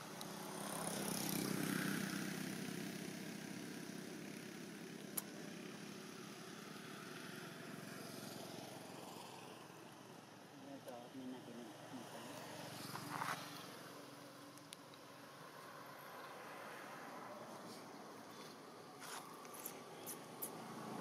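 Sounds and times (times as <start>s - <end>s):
vehicle engine running: 11.4s - 21.0s.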